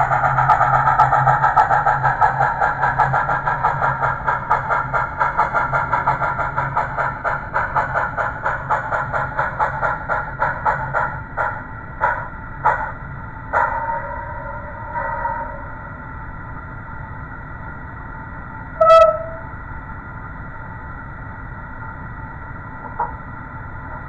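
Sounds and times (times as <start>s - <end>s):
model train chuffing: 0.0s - 15.8s.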